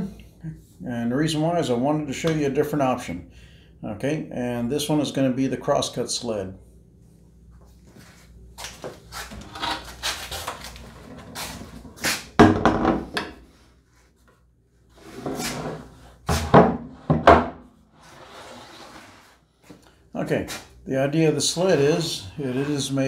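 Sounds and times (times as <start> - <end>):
wood scraping and sliding: 8.9 - 12.3, 15.0 - 17.3, 18.0 - 19.4, 21.6 - 23.0.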